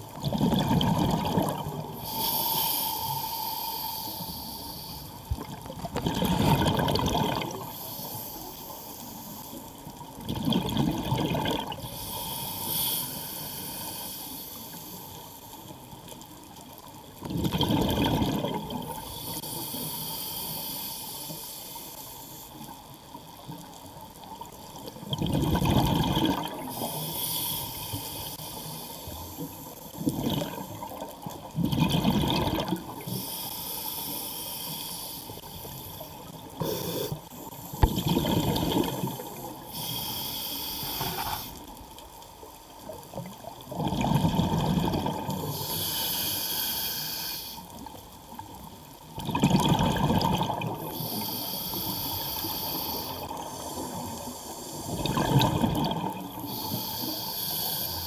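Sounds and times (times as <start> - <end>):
diver breathing through regulator: 1.5 - 5.3, 7.4 - 9.8, 11.8 - 15.7, 18.8 - 22.6, 26.6 - 30.8, 33.0 - 38.1, 39.2 - 41.7, 45.4 - 47.8, 50.8 - 58.0
bubbling exhales: 5.4 - 7.8, 17.3 - 19.0, 25.1 - 27.2, 30.0 - 30.8, 31.6 - 33.1, 37.8 - 40.0, 49.2 - 57.9.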